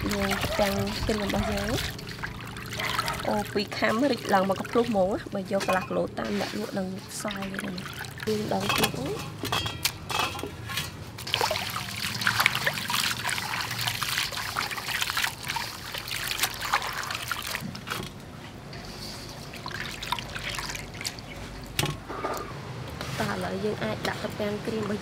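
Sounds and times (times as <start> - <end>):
water splashing in a metal bowl: 0.0 - 22.0
water dripping: 11.2 - 18.0, 19.4 - 21.8.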